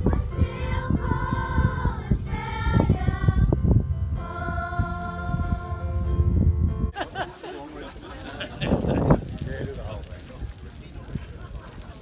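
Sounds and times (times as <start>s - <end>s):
children's choir singing: 0.0s - 3.6s, 4.2s - 6.0s.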